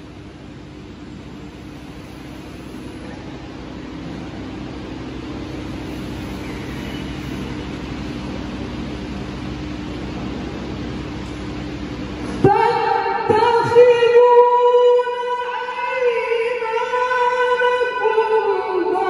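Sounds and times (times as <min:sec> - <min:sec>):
air conditioning hiss and hum: 0:00.0 - 0:19.0.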